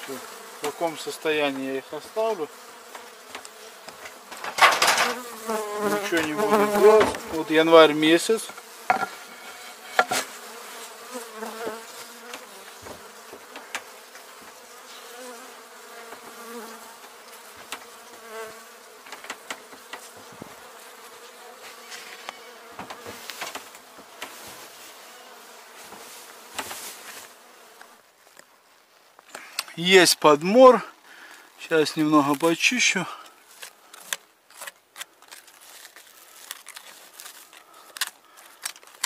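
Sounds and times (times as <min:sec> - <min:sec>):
honeybees buzzing: 0:00.0 - 0:28.1
knocks and rustles on wooden hive: 0:02.8 - 0:07.5, 0:08.5 - 0:09.2, 0:09.8 - 0:10.4, 0:11.1 - 0:15.4, 0:16.0 - 0:20.8, 0:21.6 - 0:24.7, 0:25.8 - 0:27.2.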